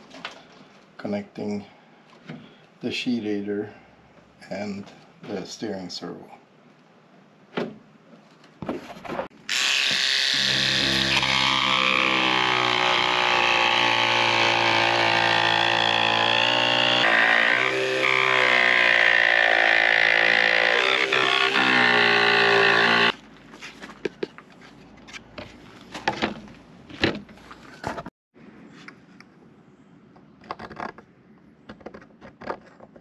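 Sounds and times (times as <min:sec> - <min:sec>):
electric jigsaw cutting: 0:09.5 - 0:23.2
clicks and knocks of handling: 0:23.5 - 0:28.1.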